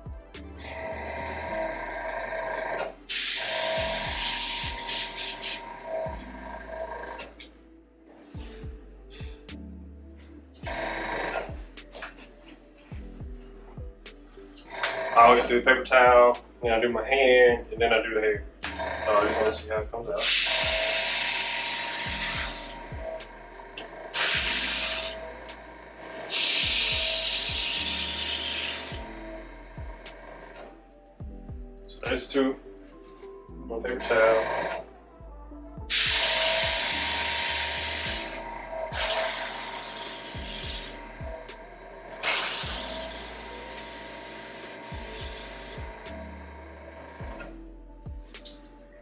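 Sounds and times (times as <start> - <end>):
airbrush spraying in hissing bursts: 3.1 - 5.6, 20.2 - 22.8, 24.1 - 25.2, 26.0 - 29.0, 35.9 - 41.0, 42.2 - 45.8.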